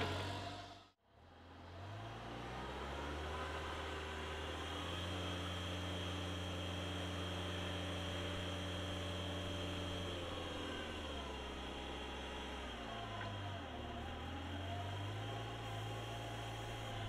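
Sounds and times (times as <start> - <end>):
hydraulic pump whine: 0.0 - 0.9
forklift engine running: 0.0 - 1.0, 2.4 - 17.0.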